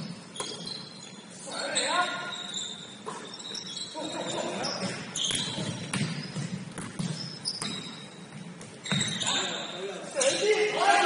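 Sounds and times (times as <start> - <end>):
basketball bouncing on court: 4.8 - 9.3.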